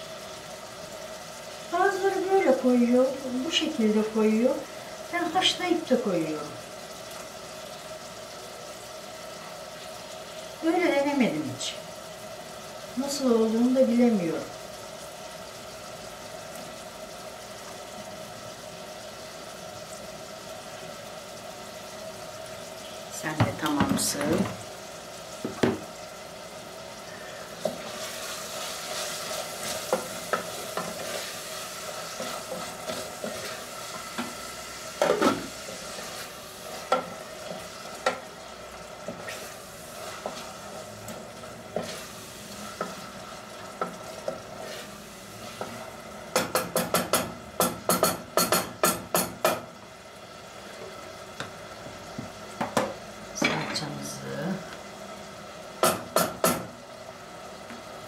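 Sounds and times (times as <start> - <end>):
meat sizzling in a pan: 0.0 - 58.0
spoon scraping a pan: 27.6 - 34.4, 39.1 - 45.8.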